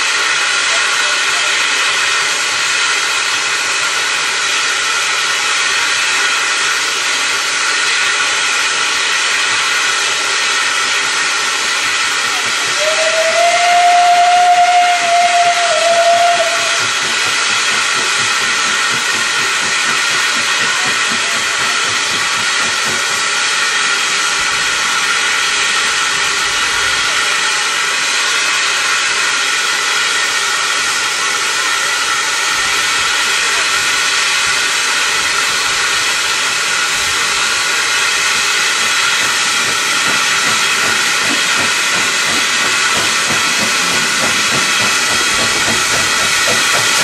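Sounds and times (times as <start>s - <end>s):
steam hissing: 0.0s - 47.0s
steam locomotive whistle: 11.8s - 47.0s.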